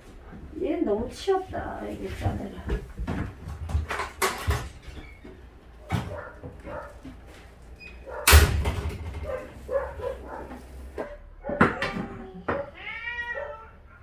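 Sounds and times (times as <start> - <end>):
cat meowing: 11.8 - 14.0.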